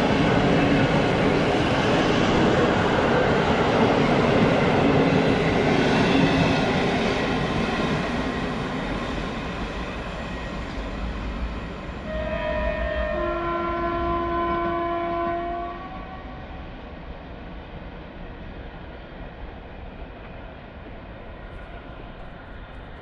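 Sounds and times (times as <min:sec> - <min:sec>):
train horn: 0:12.0 - 0:16.7.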